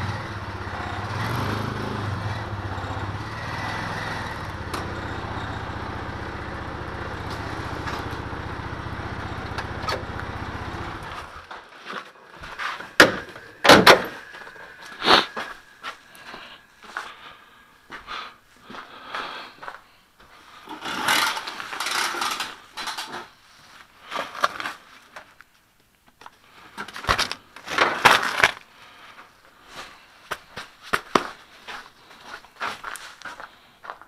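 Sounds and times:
rustling and scraping of gear: 11.0s - 34.0s.

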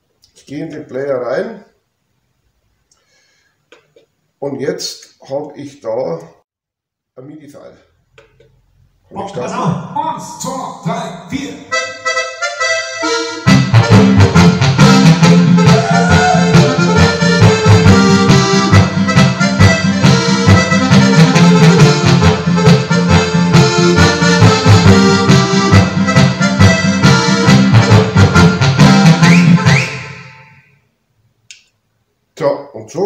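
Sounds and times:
accordion tune with bass and beat: 11.0s - 30.5s.

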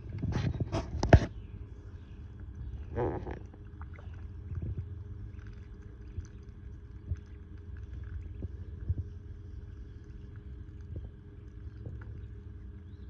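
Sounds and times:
steady low rumble: 0.0s - 13.0s
ducklings dabbling in water: 1.5s - 13.0s.

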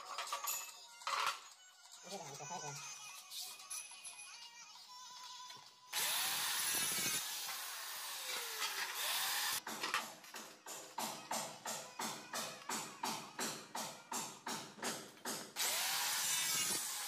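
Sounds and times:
electric tile cutter cutting tile: 6.0s - 9.6s, 15.6s - 17.0s.

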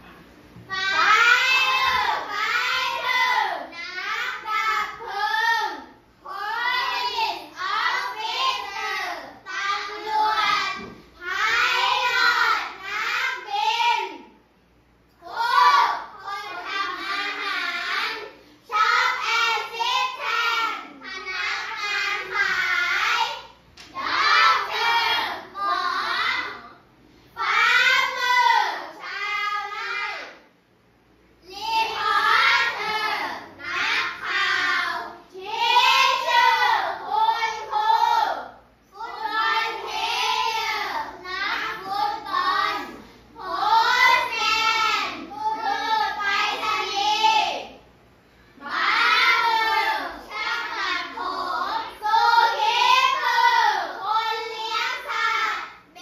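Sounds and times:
young children singing: 0.0s - 14.4s, 15.1s - 30.5s, 31.4s - 47.9s, 48.6s - 56.0s.

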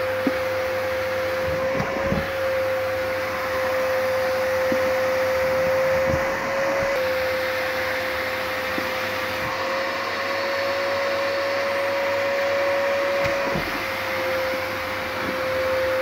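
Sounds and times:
vacuum cleaner whine: 0.0s - 16.0s.

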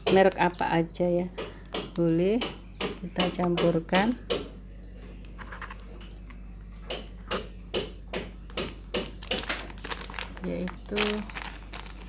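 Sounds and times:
plastic bag crackling: 9.1s - 12.0s.

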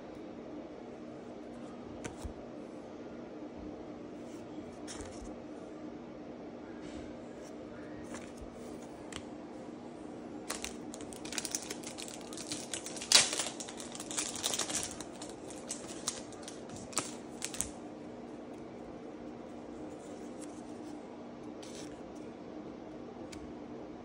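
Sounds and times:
steady low hum: 0.0s - 24.0s
foil wrapper crinkling: 10.4s - 17.8s.

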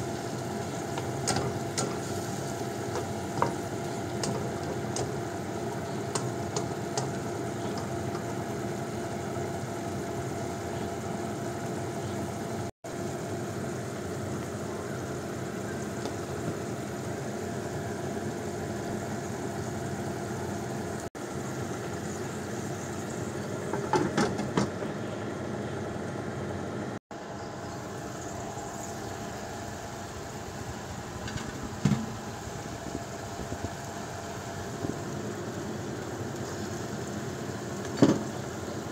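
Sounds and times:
sauce simmering in a wok: 0.0s - 23.8s, 31.7s - 38.9s
steady mechanical hum: 0.0s - 38.9s.

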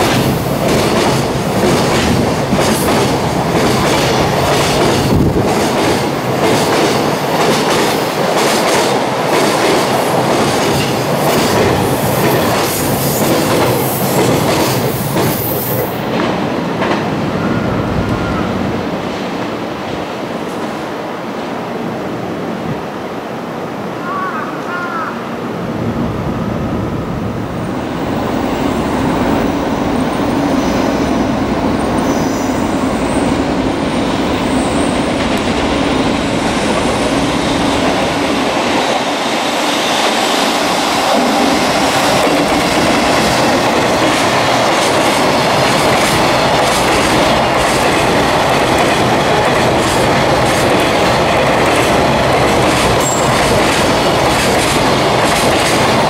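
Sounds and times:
freight train rumbling past: 0.0s - 24.2s, 25.1s - 56.0s
wheels clacking over rail joints: 36.7s - 56.0s.

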